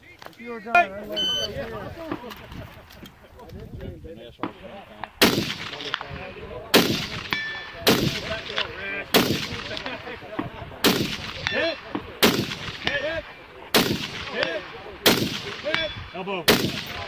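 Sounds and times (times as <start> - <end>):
rifle shots: 4.4 - 17.0
steel target ringing: 7.2 - 7.9.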